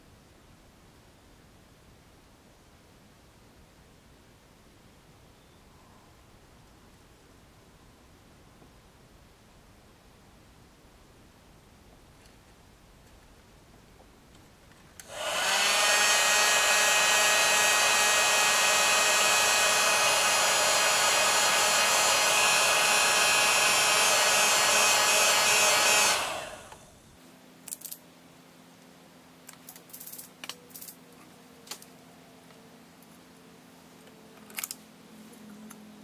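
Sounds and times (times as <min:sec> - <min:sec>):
heat gun switch: 0:15.0 - 0:26.8
heat gun blowing with whine: 0:15.0 - 0:27.0.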